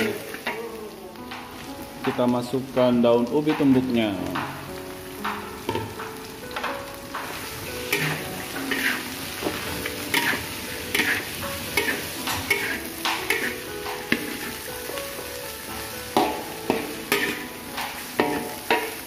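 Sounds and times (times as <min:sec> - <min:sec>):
oil sizzling: 0:00.0 - 0:19.0
metal spatula scraping a wok: 0:07.2 - 0:14.7, 0:16.2 - 0:19.0.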